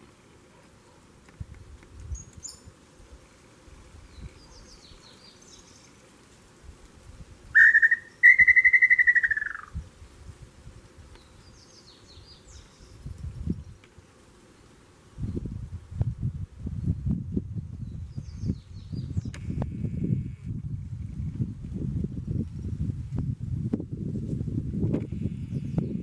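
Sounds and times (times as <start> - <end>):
bird call with falling trill: 7.6 - 9.7
high bird chirps: 7.6 - 9.7.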